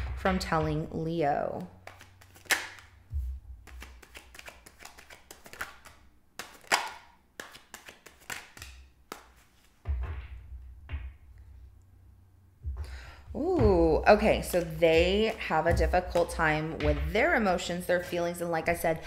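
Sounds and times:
cards being shuffled: 1.4s - 3.0s, 3.6s - 10.2s
dull handling bumps: 9.8s - 11.8s, 12.6s - 17.8s.

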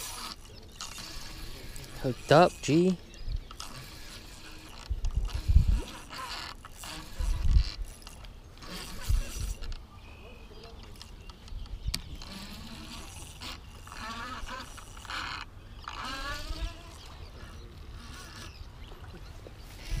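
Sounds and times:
drawn-out pitched calls: 0.0s - 9.7s, 12.1s - 20.0s
fishing reel cranking: 0.0s - 9.8s, 12.0s - 18.6s
wind on microphone: 1.0s - 8.0s, 8.6s - 9.7s, 16.1s - 20.0s.

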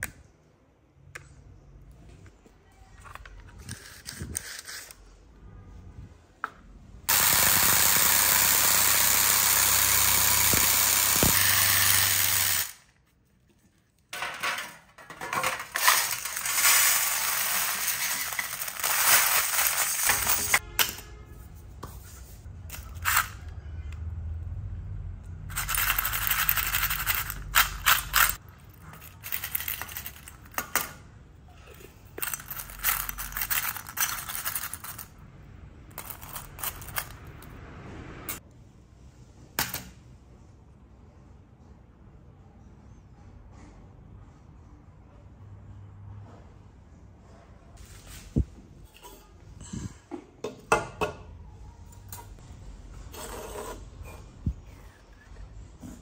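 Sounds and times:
loud steady machine noise: 7.1s - 12.7s
small metal parts clinking: 14.2s - 20.6s, 25.5s - 31.0s, 32.1s - 35.2s, 35.9s - 37.5s
pellets rattling in metal mesh basket: 15.4s - 20.6s, 25.5s - 28.4s.

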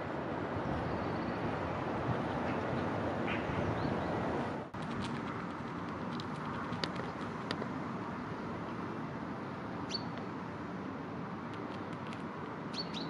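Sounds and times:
bird chirp: 9.8s - 10.2s, 12.7s - 13.0s.

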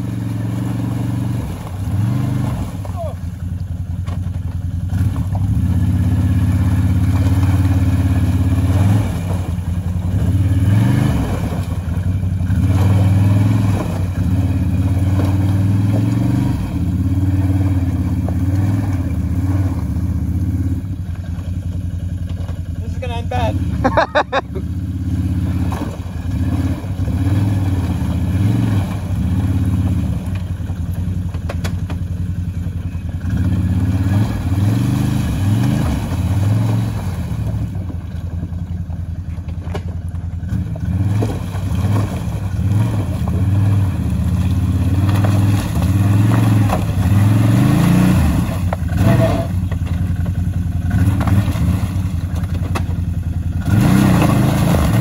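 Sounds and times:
atv engine revving: 0.0s - 55.0s.

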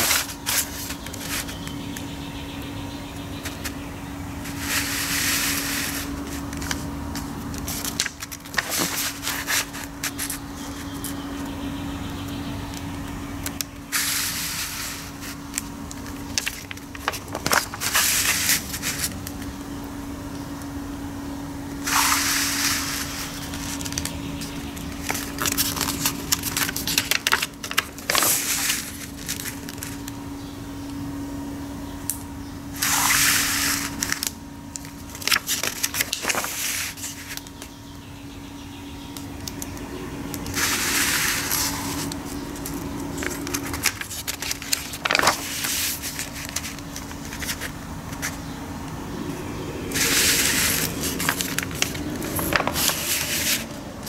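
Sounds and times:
paper pages rustling and turning: 0.0s - 1.8s, 4.4s - 11.2s, 13.5s - 19.5s, 21.9s - 30.1s, 32.8s - 37.7s, 40.4s - 48.4s, 49.9s - 54.0s
low hum: 37.8s - 54.0s.

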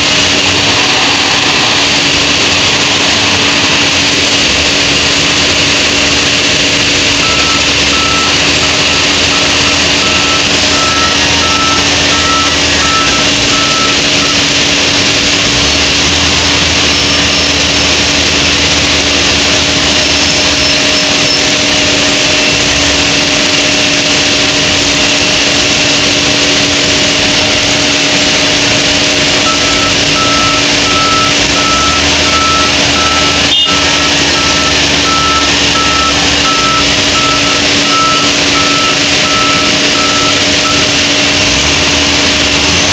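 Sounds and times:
loader diesel engine running: 0.0s - 42.9s
reversing alarm beeps: 7.0s - 15.0s, 19.9s - 21.7s, 29.2s - 42.4s.

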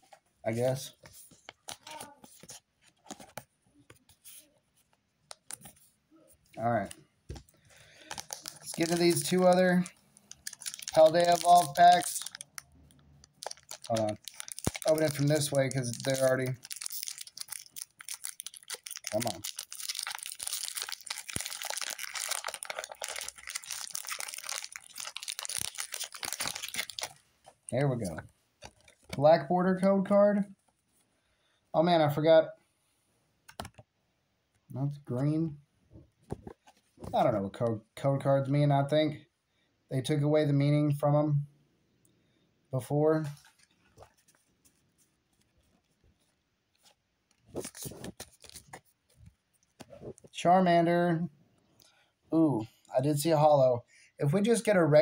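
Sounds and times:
trading cards being shuffled: 8.0s - 12.4s, 13.4s - 27.1s, 46.8s - 49.2s
foil wrapper crinkling: 8.0s - 27.8s.

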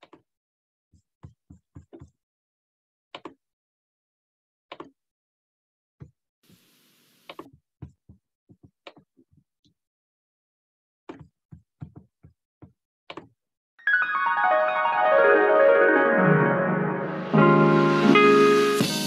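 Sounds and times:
keyboard piano music: 13.8s - 19.0s.

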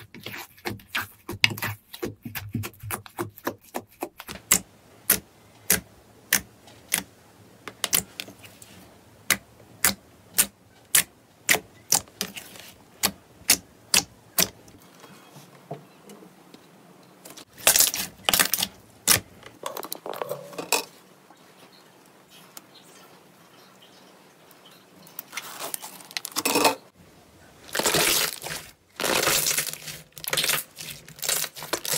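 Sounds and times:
slime squishing and crackling: 17.5s - 19.3s, 27.6s - 31.9s.

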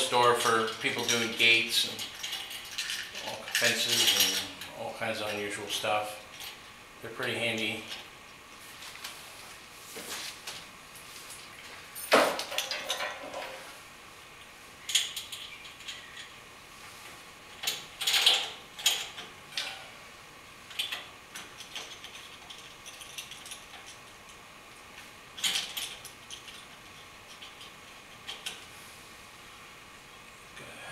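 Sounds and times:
metal chain clinking and rattling: 0.4s - 5.4s, 11.9s - 13.6s, 17.6s - 19.8s, 20.7s - 24.3s, 25.4s - 28.6s.

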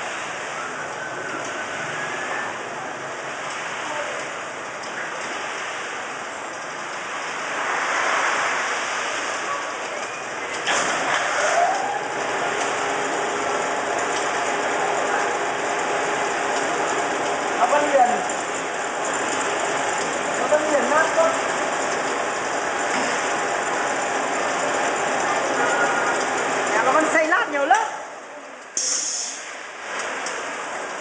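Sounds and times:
mechanical whine: 0.0s - 27.2s
machinery clatter: 0.0s - 28.0s
machinery hissing: 0.0s - 31.0s.

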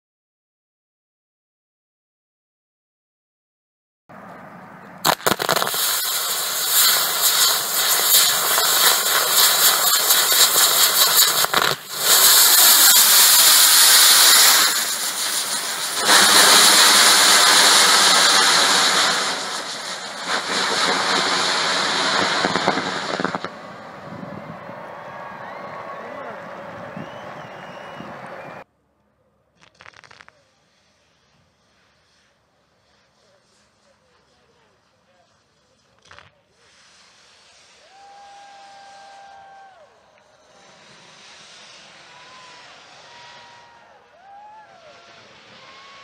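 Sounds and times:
firework cracks: 5.0s - 26.0s, 29.6s - 46.0s
firework loud dense hiss: 5.0s - 28.6s, 29.6s - 46.0s.

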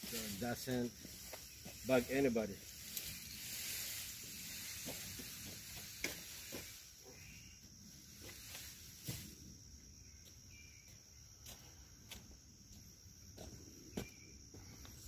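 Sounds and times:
high-pitched insect trill: 0.0s - 15.0s.

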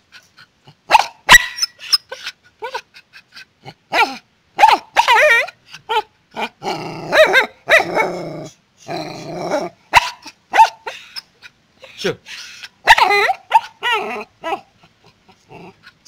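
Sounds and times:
small dog barking: 0.9s - 1.8s, 3.9s - 6.0s, 7.1s - 8.0s, 9.9s - 10.9s, 12.8s - 14.6s
dog growl-barking: 3.6s - 10.9s, 12.8s - 16.0s.

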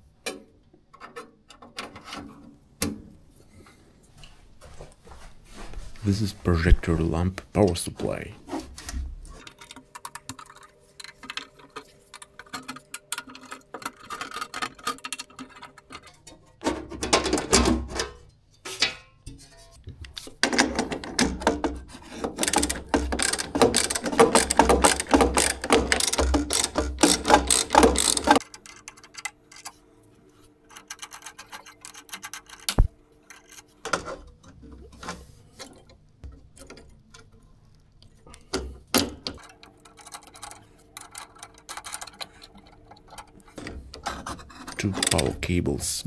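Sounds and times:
ratchet wrench clicking: 22.5s - 28.4s.

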